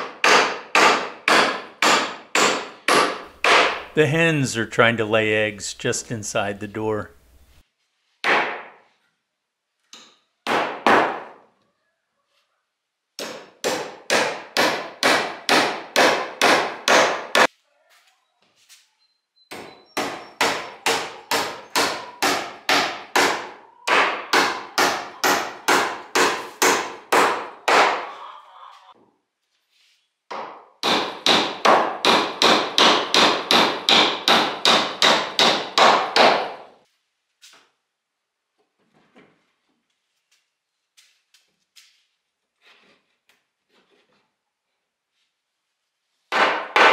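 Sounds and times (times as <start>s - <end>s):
hammer driving nails into wood: 0.0s - 3.9s, 13.2s - 17.5s, 19.5s - 28.0s, 30.3s - 36.7s, 46.3s - 46.9s.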